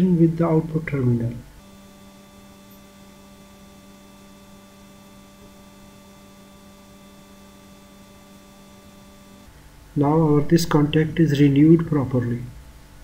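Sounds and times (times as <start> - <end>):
soldering gun humming: 1.4 - 11.2.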